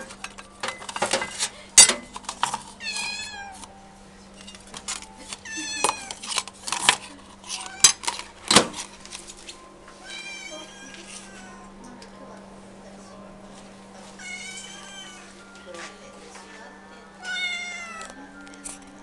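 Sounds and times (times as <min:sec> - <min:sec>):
paper cups and plate clattering: 0:00.0 - 0:03.7, 0:04.3 - 0:09.6
cats meowing: 0:02.8 - 0:03.7, 0:05.4 - 0:06.2, 0:07.6 - 0:08.0, 0:10.0 - 0:11.7, 0:14.2 - 0:15.4, 0:17.2 - 0:18.1.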